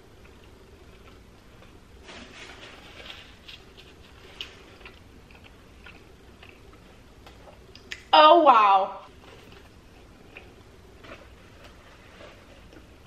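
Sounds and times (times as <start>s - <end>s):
person chewing food: 0.0s - 2.0s, 2.7s - 8.0s, 9.1s - 13.0s
mouth clicks and smacks: 7.6s - 8.2s.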